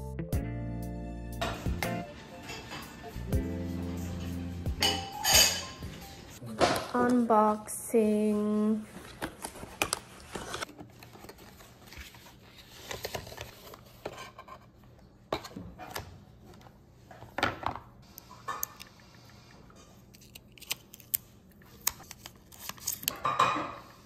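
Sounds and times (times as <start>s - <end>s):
paper packaging rustling: 8.8s - 14.4s, 20.1s - 23.4s.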